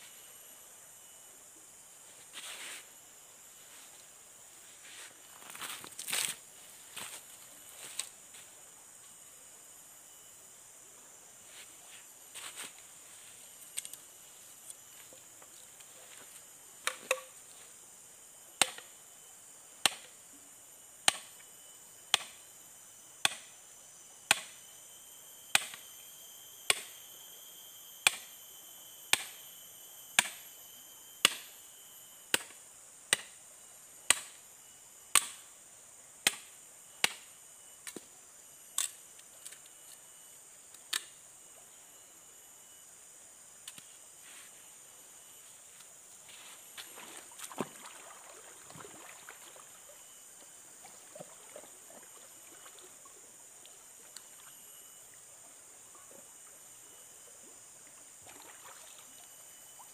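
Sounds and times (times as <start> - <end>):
forest insects droning: 0.0 - 59.9
sharp chopping strikes: 18.6 - 18.9, 19.8 - 20.1, 21.0 - 21.3, 22.1 - 22.4, 23.2 - 23.5, 24.3 - 24.6, 25.5 - 25.8, 26.7 - 27.0, 28.0 - 28.3, 29.1 - 29.4, 30.2 - 30.4, 31.2 - 31.6, 32.3 - 33.4, 34.1 - 34.4, 35.1 - 35.4, 36.2 - 37.2.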